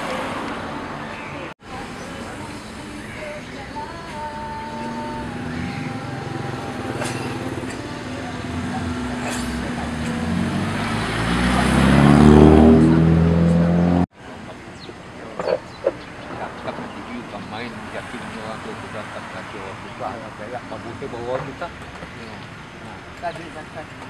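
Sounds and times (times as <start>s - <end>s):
steady traffic hum: 0.0s - 24.0s
car accelerating past: 4.8s - 14.1s.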